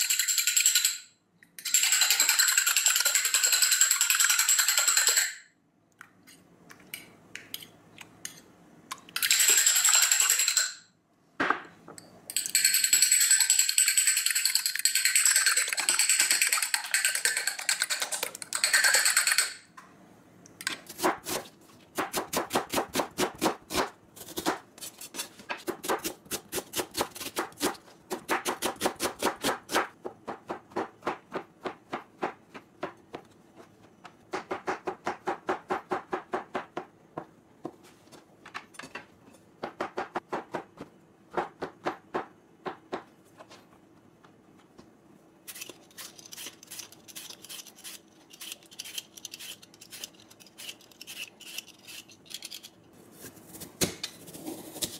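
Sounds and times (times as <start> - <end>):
spoon beating eggs in bowl: 12.3 - 19.5.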